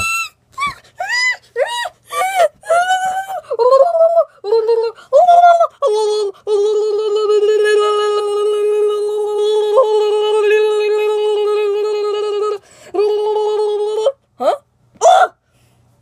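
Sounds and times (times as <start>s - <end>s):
person's strained high cry: 0.0s - 5.9s, 14.4s - 15.4s.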